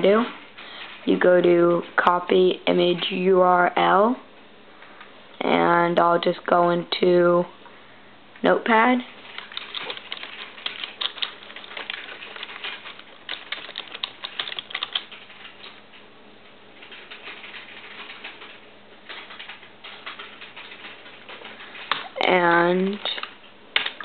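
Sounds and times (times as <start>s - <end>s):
typing on computer keyboard: 9.2s - 15.8s, 16.8s - 24.0s.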